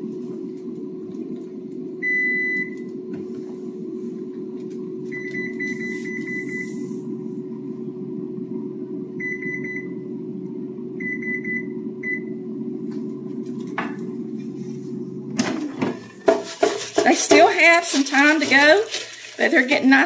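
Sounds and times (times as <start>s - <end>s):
steady low hum: 0.0s - 20.0s
electronic timer beeping: 11.0s - 12.3s.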